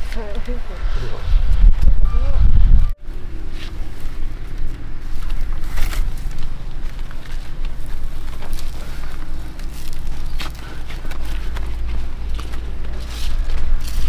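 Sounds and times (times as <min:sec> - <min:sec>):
wind rumble on microphone: 0:00.0 - 0:14.0
bamboo basket rustling and creaking: 0:03.0 - 0:14.0.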